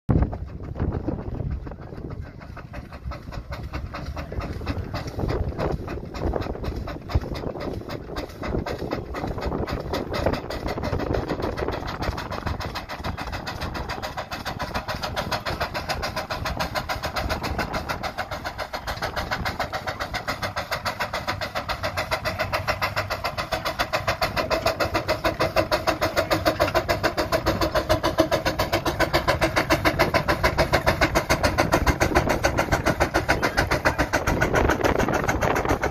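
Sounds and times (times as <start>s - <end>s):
steam engine exhaust chuffing: 0.1s - 35.9s.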